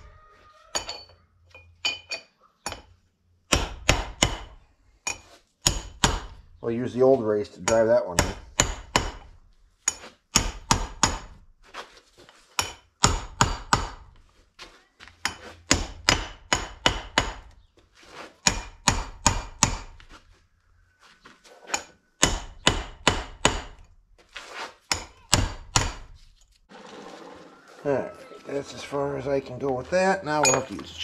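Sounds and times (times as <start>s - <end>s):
hammer striking steel: 3.5s - 6.4s, 7.6s - 9.3s, 9.9s - 11.4s, 15.2s - 17.4s, 18.4s - 20.0s, 21.7s - 23.8s.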